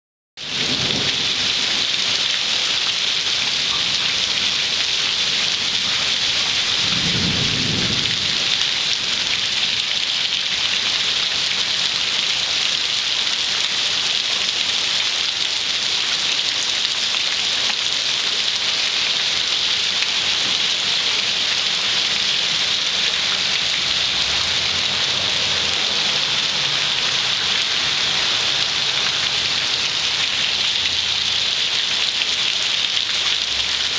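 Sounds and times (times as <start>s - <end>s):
heavy rain on pavement: 0.4s - 33.9s.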